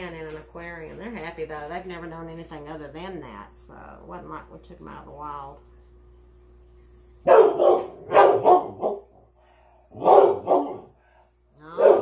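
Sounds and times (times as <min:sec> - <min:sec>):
dog barking: 0:07.2 - 0:09.1, 0:10.0 - 0:10.9, 0:11.7 - 0:12.0.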